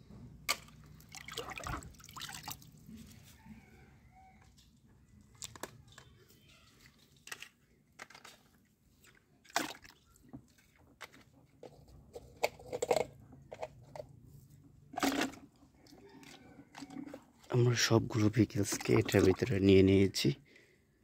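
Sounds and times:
plastic toys clicking and knocking: 5.2s - 14.2s, 14.9s - 17.5s.

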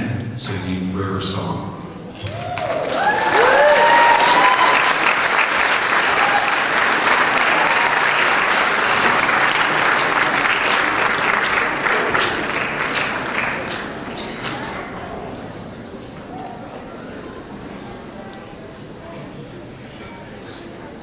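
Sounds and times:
cheering whoops: 2.2s - 8.3s
audience applauding: 2.2s - 15.0s.

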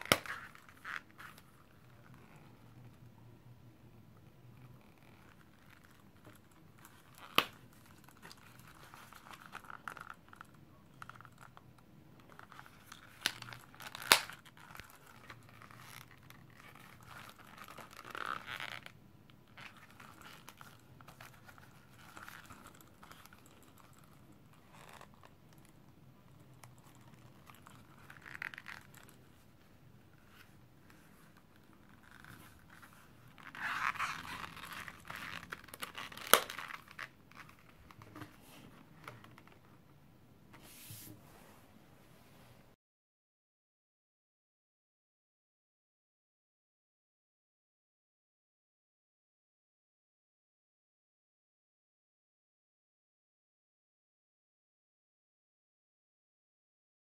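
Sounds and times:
leather wallet rustling: 0.0s - 3.0s, 4.6s - 10.5s, 12.3s - 18.9s, 19.5s - 25.7s, 26.3s - 39.6s.

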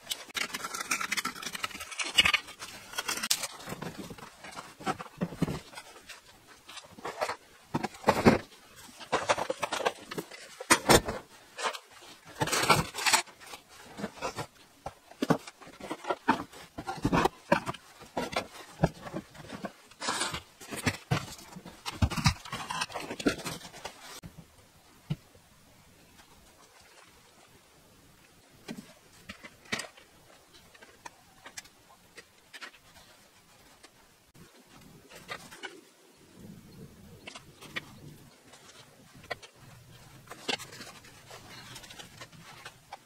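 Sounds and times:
wooden boards knocking and scraping: 0.3s - 6.2s, 6.8s - 24.2s.

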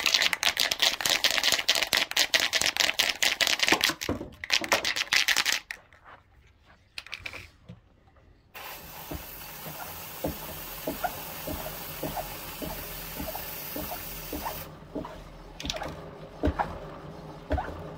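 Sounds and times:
aerosol spray can hissing: 8.6s - 14.7s.

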